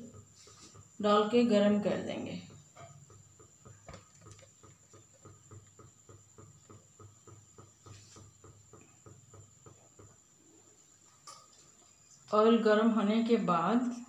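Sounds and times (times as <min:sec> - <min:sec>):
faint regular ticking: 0:00.0 - 0:10.4.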